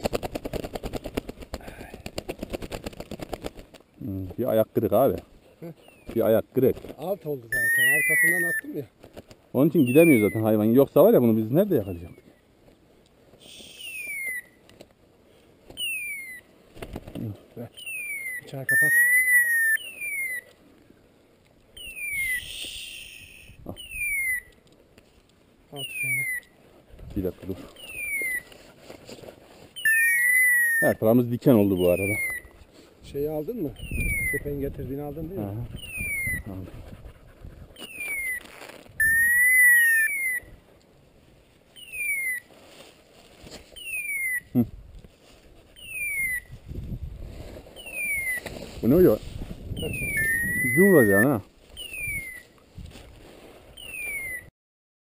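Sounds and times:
high whistled downward call: 7.5s - 8.6s, 13.4s - 14.6s, 17.8s - 20.5s, 21.8s - 24.6s, 35.8s - 36.5s, 37.8s - 40.5s, 45.8s - 46.5s, 49.8s - 51.2s, 51.8s - 52.5s, 53.8s - 54.5s
rustling hiss: 12.3s - 17.7s, 19.9s - 23.6s
held whistle: 13.4s - 14.5s, 21.8s - 24.5s, 39.0s - 40.5s, 49.8s - 51.1s, 53.8s - 54.5s
short falling whistles: 13.4s - 14.6s, 21.8s - 24.5s, 53.8s - 54.5s.

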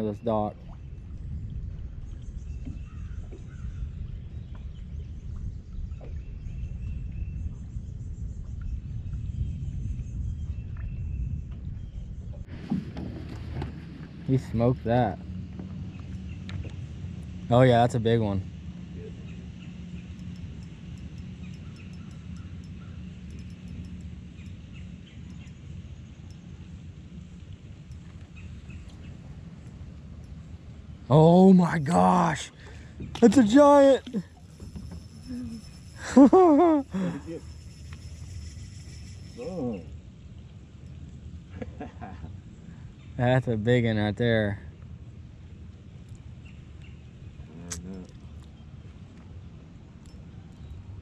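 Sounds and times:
low hum: 0.6s - 42.9s
bird calls and chirps: 1.9s - 12.5s, 19.0s - 26.8s, 27.9s - 29.7s.

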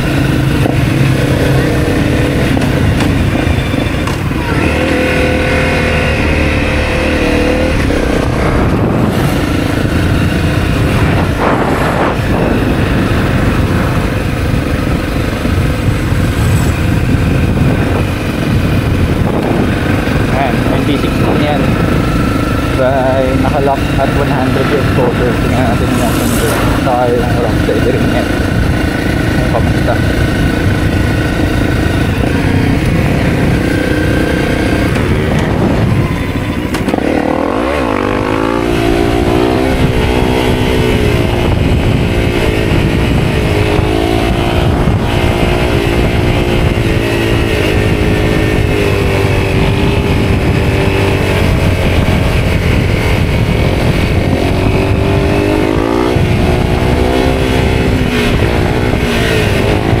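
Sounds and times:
motorcycle engine running: 0.0s - 60.0s.

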